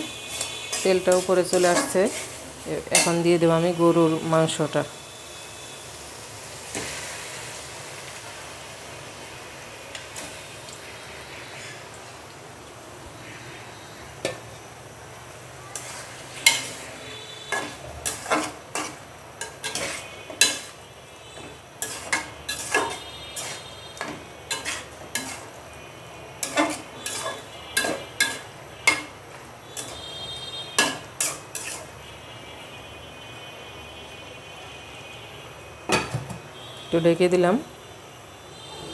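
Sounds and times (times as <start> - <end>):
spoon scraping metal pan: 0.0 - 3.5, 15.7 - 25.6, 26.4 - 32.0
low sizzle: 0.0 - 37.6.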